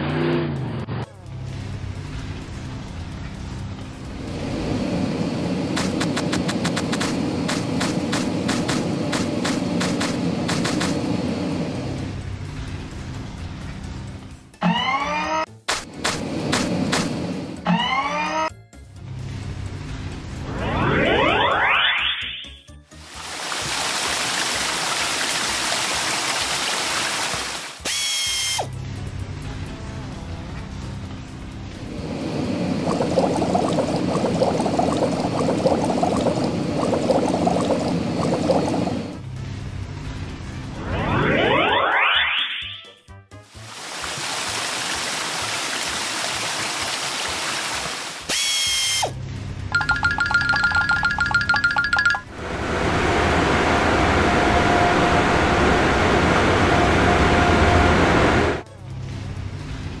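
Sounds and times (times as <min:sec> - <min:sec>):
cartoon car wash rushing hiss: 0:01.3 - 0:12.7, 0:23.0 - 0:28.7, 0:31.6 - 0:42.3, 0:43.5 - 0:49.3
soap suds bubbling and popping: 0:32.8 - 0:38.9.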